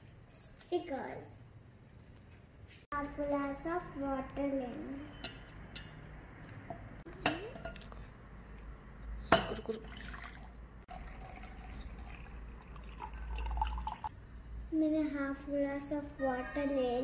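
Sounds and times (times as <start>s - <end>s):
glass clinking: 5.1s - 6.0s, 6.7s - 7.9s, 9.3s - 14.1s
water pouring into glass: 9.4s - 14.1s.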